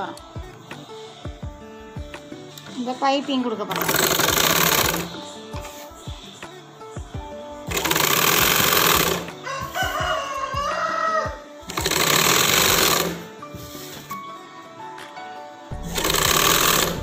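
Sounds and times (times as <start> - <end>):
sewing machine running: 3.7 - 5.2, 7.7 - 9.3, 11.7 - 13.3, 15.8 - 17.0
rooster crowing: 9.4 - 11.6.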